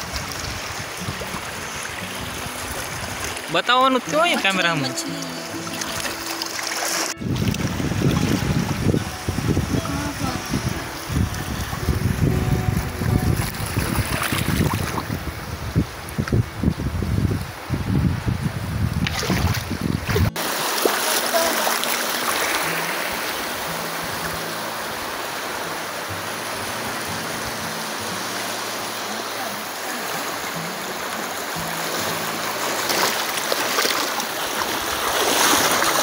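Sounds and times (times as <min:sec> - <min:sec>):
choppy water and small waves: 0:00.0 - 0:36.0
faint music with low notes: 0:01.0 - 0:14.3
wind buffeting microphone: 0:07.2 - 0:20.4.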